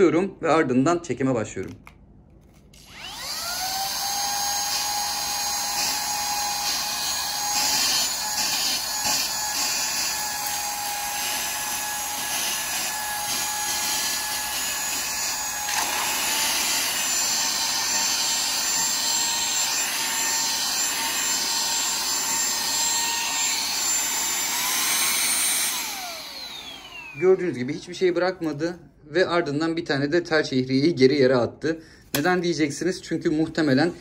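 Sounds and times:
handheld vacuum whining: 0:02.8 - 0:27.9.

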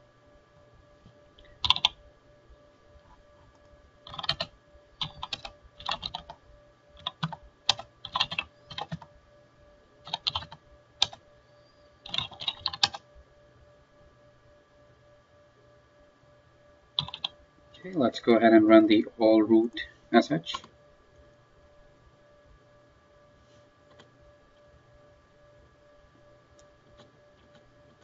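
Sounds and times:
faint steady hum: 0:00.0 - 0:28.0
keyboard typing: 0:01.0 - 0:02.0, 0:03.0 - 0:06.4, 0:07.0 - 0:09.1, 0:10.0 - 0:11.2, 0:12.0 - 0:13.0, 0:17.0 - 0:18.0, 0:23.9 - 0:24.1, 0:26.5 - 0:28.0.

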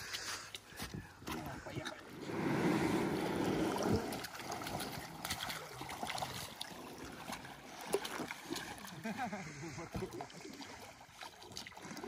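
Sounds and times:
water sloshing and splashing: 0:00.0 - 0:12.0.

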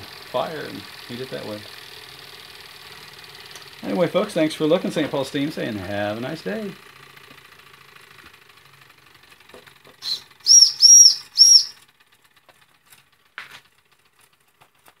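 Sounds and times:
small engine running: 0:00.0 - 0:15.0
steam whistle toots: 0:10.0 - 0:11.8.

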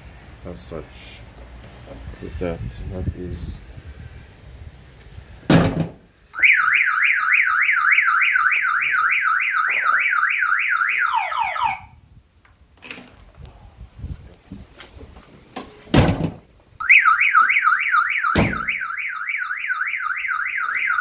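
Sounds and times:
thump: 0:05.5 - 0:06.0, 0:15.9 - 0:16.4, 0:18.4 - 0:18.7
car alarm siren whooping: 0:06.4 - 0:12.0, 0:16.8 - 0:21.0.

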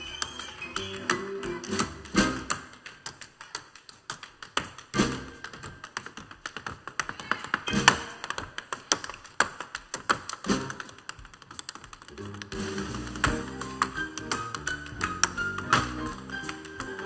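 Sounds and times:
tap shoes striking floor: 0:00.7 - 0:17.0.

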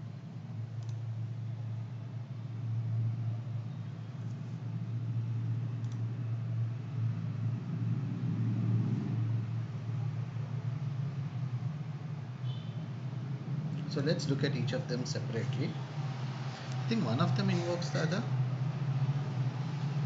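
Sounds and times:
steady low rumble: 0:00.0 - 0:20.0
faint clicks: 0:00.8 - 0:01.0, 0:05.8 - 0:06.0.

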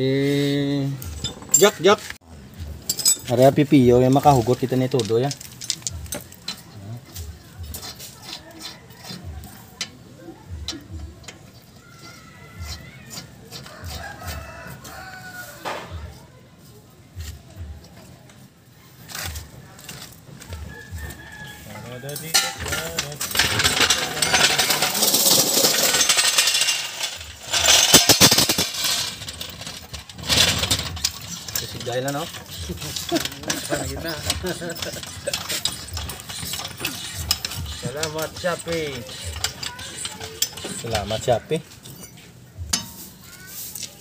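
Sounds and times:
lug nuts clicking on metal: 0:21.8 - 0:42.1.

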